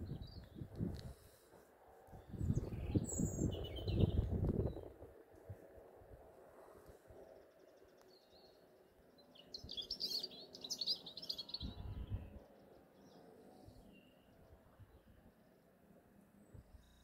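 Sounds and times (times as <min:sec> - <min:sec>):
songbird twittering: 0:02.3 - 0:04.9, 0:09.2 - 0:13.3.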